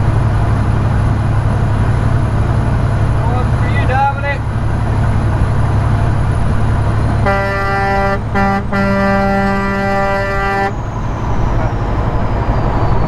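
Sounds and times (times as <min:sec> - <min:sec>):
engine and road rumble: 0:00.0 - 0:13.0
vehicle horn low note: 0:07.2 - 0:10.8.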